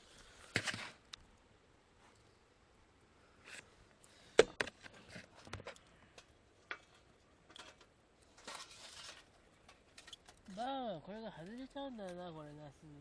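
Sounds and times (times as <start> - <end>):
scraping rustle: 6.8 - 10.7.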